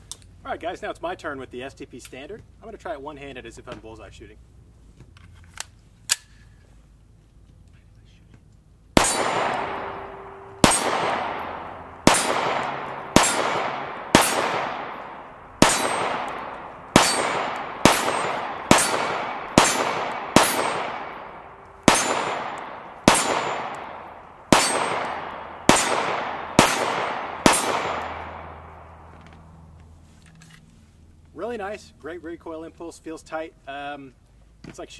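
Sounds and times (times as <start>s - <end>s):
pistol shots echoing: 9.0s - 29.2s.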